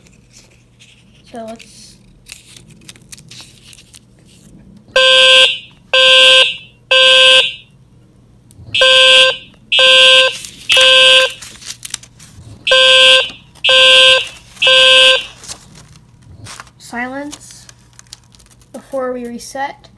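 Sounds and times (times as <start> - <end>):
fire alarm horn blasts: 4.9 - 7.8, 8.7 - 11.4, 12.7 - 15.4.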